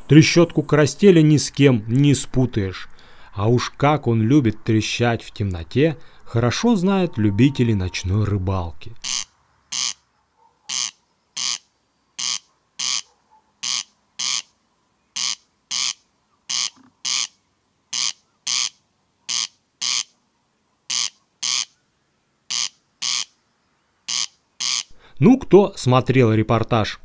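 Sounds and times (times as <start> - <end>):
corncrake rattling call: 9.0 - 10.0, 10.6 - 14.5, 15.1 - 20.2, 20.9 - 21.8, 22.5 - 23.4, 24.0 - 25.0.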